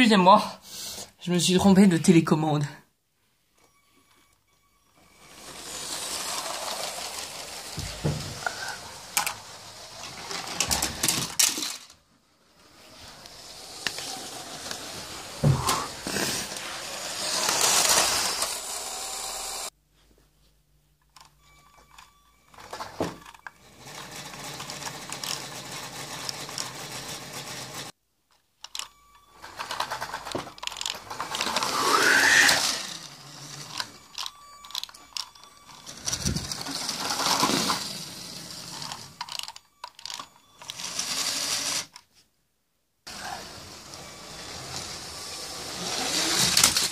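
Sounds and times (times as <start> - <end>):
wheel and track rattle: 5.2 - 11.9, 22.6 - 27.9, 29.4 - 41.9, 43.1 - 46.9
small electric motor whirring: 13.2 - 19.7, 30.7 - 35.2, 43.1 - 46.9.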